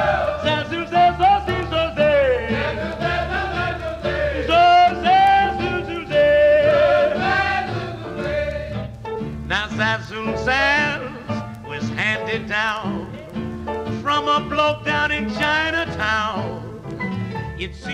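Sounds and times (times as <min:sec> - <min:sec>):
swing jazz band: 0:00.0 - 0:17.9
man singing scat: 0:00.4 - 0:02.8, 0:04.4 - 0:07.2, 0:09.5 - 0:13.4, 0:14.0 - 0:16.8, 0:17.6 - 0:17.9.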